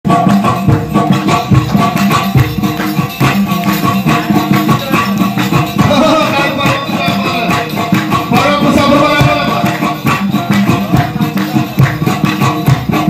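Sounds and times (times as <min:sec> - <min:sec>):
long-necked lute strummed fast: 0:00.1 - 0:13.0.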